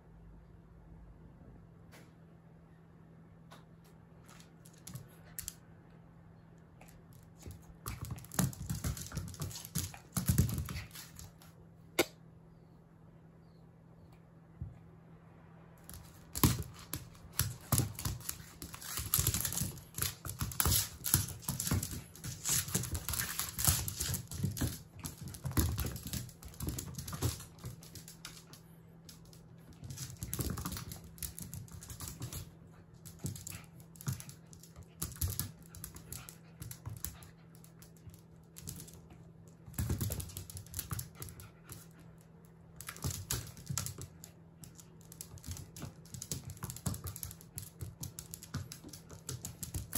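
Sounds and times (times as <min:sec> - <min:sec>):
dog claws scrabbling on wooden floor: 0:06.8 - 0:11.5, 0:15.8 - 0:42.1, 0:42.8 - 0:49.9.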